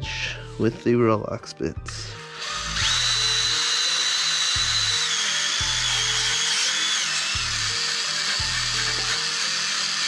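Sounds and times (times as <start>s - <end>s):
drill spinning bristle disc: 2.2s - 10.0s.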